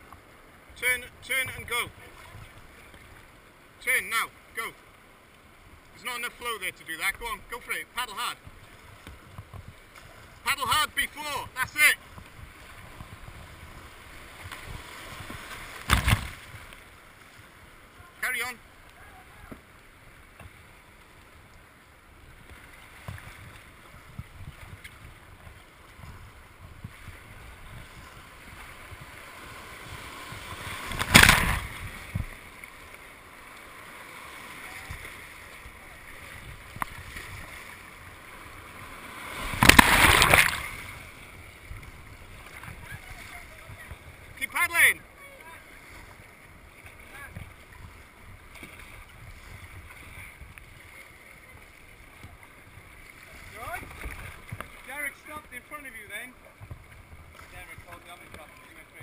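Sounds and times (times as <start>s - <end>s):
paddle splash: 0.0s - 59.0s
white water rushing against hull: 0.0s - 59.0s
whitewater rushing: 28.8s - 32.9s, 33.5s - 47.8s.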